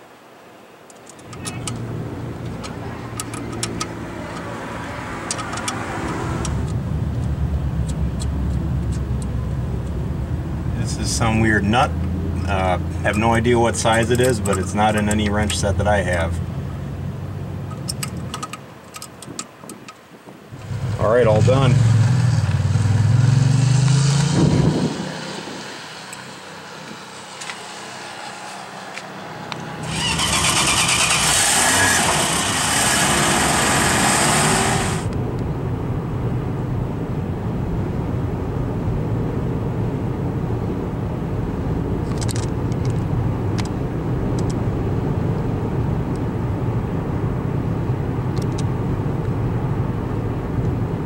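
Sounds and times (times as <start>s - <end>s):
car road and engine rumble: 0.0s - 51.0s
loud rushing hiss: 29.8s - 35.1s.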